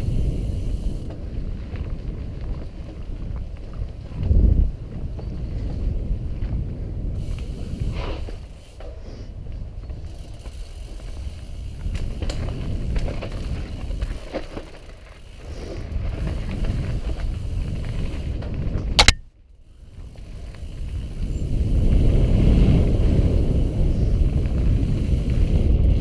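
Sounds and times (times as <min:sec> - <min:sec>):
wind on microphone: 0:00.0 - 0:10.4, 0:15.2 - 0:19.1, 0:19.9 - 0:26.0
bike tyre rumble and rattling: 0:00.0 - 0:26.0
sharp clack: 0:19.0 - 0:19.2.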